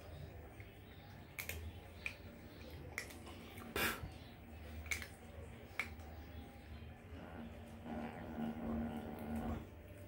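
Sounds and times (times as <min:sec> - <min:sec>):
faint low hum: 0:00.0 - 0:10.0
cats chewing and mouth clicks: 0:00.5 - 0:04.1, 0:04.7 - 0:06.2.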